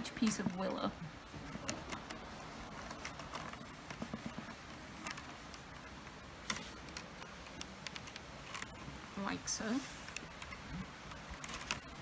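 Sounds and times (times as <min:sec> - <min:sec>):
willow rods clicking and tapping: 0:01.5 - 0:08.8, 0:09.9 - 0:12.0.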